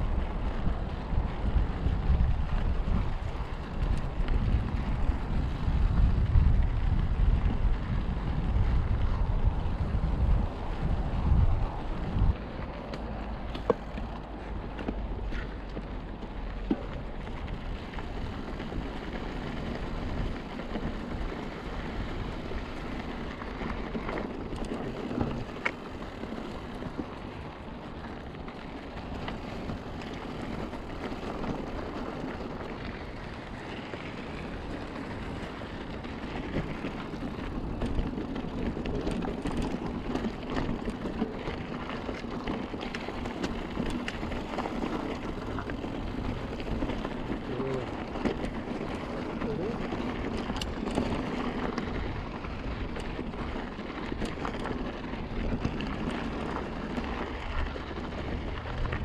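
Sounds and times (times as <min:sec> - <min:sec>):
wind on microphone: 0:00.0 - 0:12.5
bike rattling: 0:00.0 - 0:59.0
bike tyres crunching on gravel: 0:00.0 - 0:59.0.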